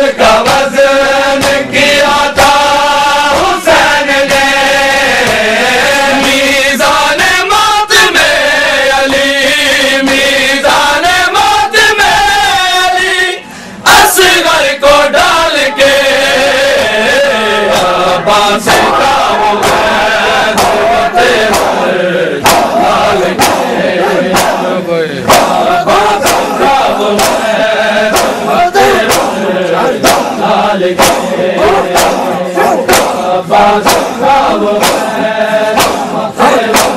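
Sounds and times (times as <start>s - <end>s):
crowd of men chanting: 0.0s - 36.9s
chest-beating slaps: 1.3s - 2.7s, 17.7s - 36.9s.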